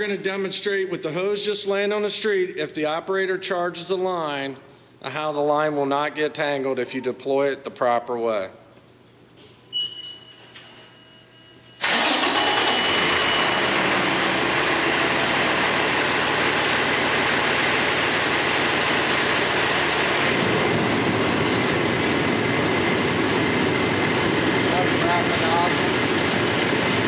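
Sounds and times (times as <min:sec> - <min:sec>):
fire engine pump running: 0:11.8 - 0:27.0.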